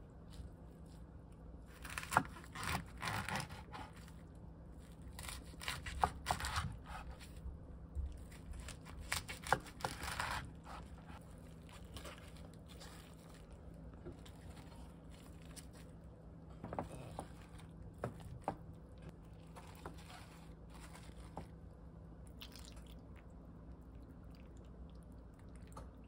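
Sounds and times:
knife slicing cabbage: 0:01.7 - 0:04.2, 0:04.8 - 0:07.4, 0:08.2 - 0:13.4, 0:19.4 - 0:21.5.

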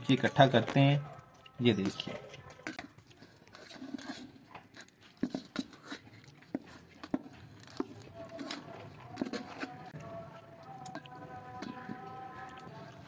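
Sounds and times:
sticky candy squelching: 0:00.1 - 0:13.0
knife scraping steel bowl: 0:01.7 - 0:09.9.

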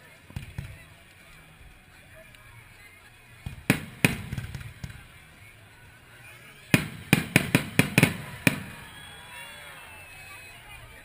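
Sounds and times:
fireworks bangs: 0:03.4 - 0:05.5, 0:06.7 - 0:09.5.

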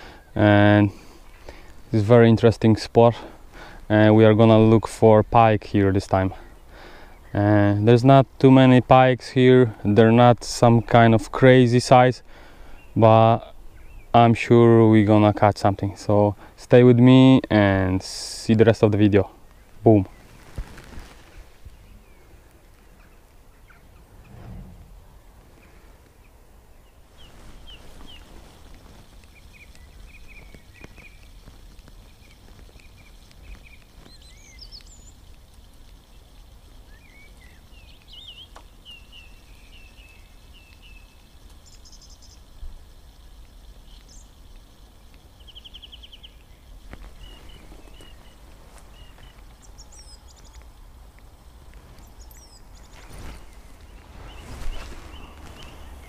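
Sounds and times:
birds chirping and trilling: 0:00.0 - 0:20.4, 0:21.3 - 0:56.0
low background rumble: 0:21.3 - 0:38.2.

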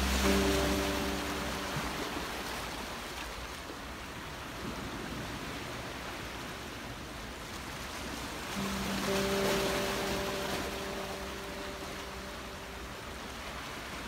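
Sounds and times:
background music notes: 0:00.0 - 0:03.0, 0:08.5 - 0:14.0.

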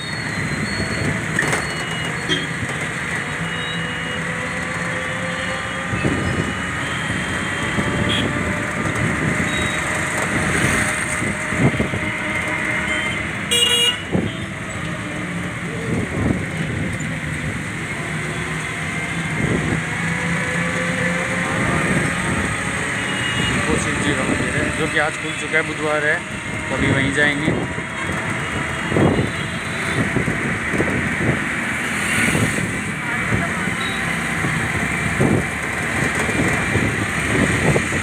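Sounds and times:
motorcycle and car engines: 0:00.0 - 0:38.0
horn toots: 0:10.6 - 0:14.5.

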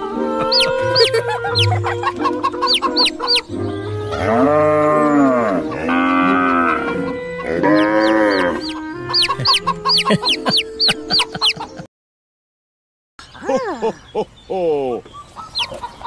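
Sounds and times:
rapid high chirping: 0:00.4 - 0:03.5, 0:07.8 - 0:11.8, 0:15.2 - 0:16.0
cow mooing: 0:04.1 - 0:09.5.

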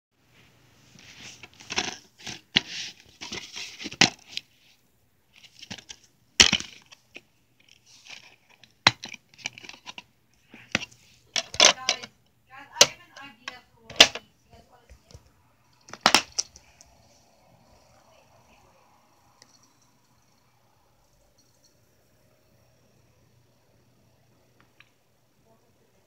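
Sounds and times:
plastic case clicking and rustling: 0:01.4 - 0:04.5, 0:05.4 - 0:10.1, 0:10.7 - 0:12.1, 0:13.9 - 0:14.2, 0:15.8 - 0:16.6.

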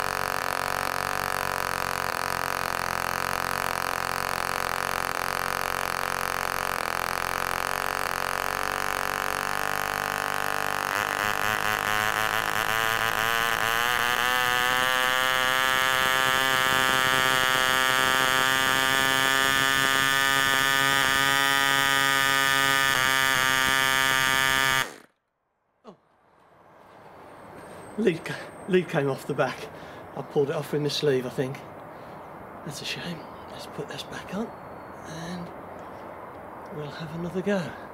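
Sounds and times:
model aero engine buzzing: 0:00.0 - 0:25.1.

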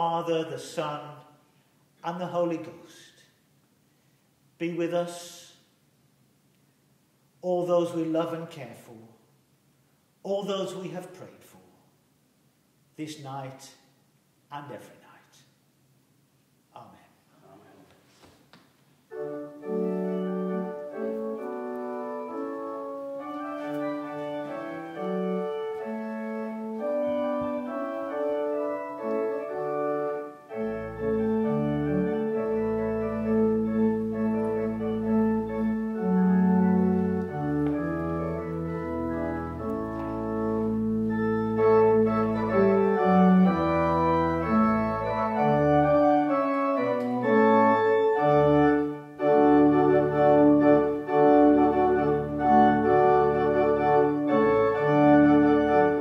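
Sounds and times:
church organ chords: 0:19.1 - 0:56.0
deep organ pedal bass: 0:19.1 - 0:56.0.

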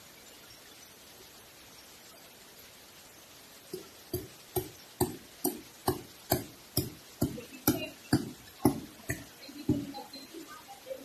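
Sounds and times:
hammer knocking on wood: 0:03.7 - 0:09.9.

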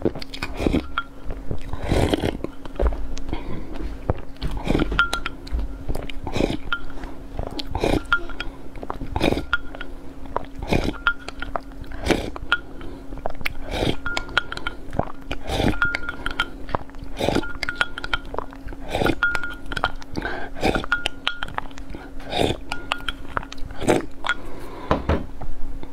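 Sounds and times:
slurping sips: 0:00.3 - 0:00.9, 0:01.6 - 0:02.4, 0:07.6 - 0:09.5, 0:10.4 - 0:19.2, 0:20.1 - 0:20.9, 0:21.9 - 0:24.7
glass clinks: 0:04.9 - 0:05.3, 0:15.7 - 0:16.5, 0:19.2 - 0:19.8, 0:20.8 - 0:21.6.

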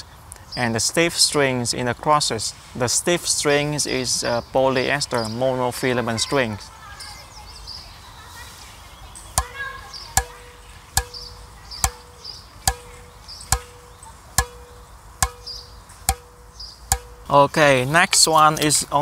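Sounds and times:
racquet strings tapped and pinging: 0:09.4 - 0:09.6, 0:10.2 - 0:17.3.

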